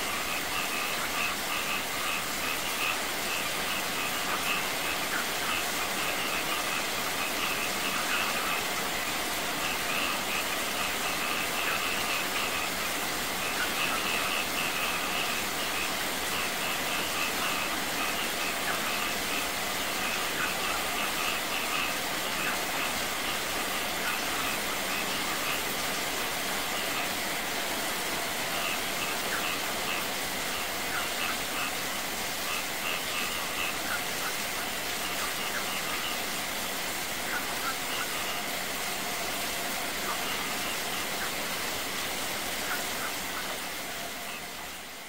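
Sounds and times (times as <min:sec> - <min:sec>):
heavy rain spattering: 0:00.0 - 0:45.0
waterfall running over rocks: 0:00.0 - 0:45.0.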